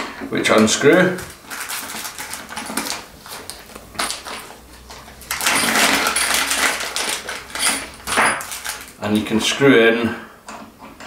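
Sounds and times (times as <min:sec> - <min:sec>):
plastic bag crinkling: 0:00.6 - 0:09.3.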